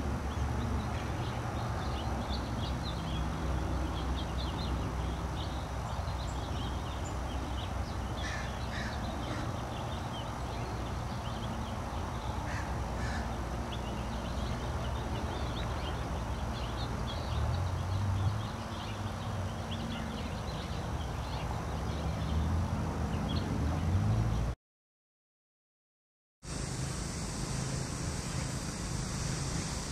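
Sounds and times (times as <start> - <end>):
birds chirping: 0.0 - 24.5
harsh bird calls: 0.4 - 22.4.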